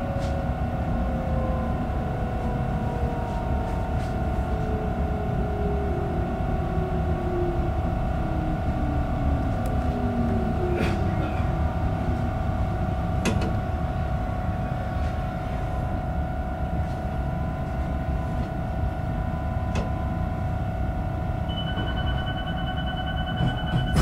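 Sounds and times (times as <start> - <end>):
train motor whine: 0.0 - 16.7
low rumble: 0.0 - 18.1
electrical hum: 0.0 - 24.0.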